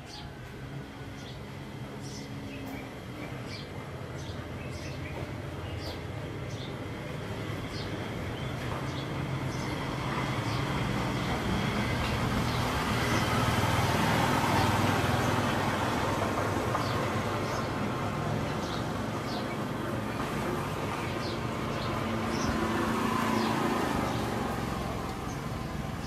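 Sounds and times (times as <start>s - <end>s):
passing vehicle engine and tyres: 5.7s - 26.0s.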